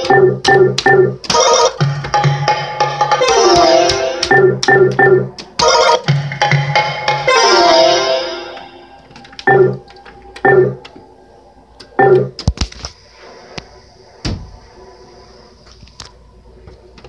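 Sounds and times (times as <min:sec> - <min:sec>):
short electronic tones: 0:10.4 - 0:10.8.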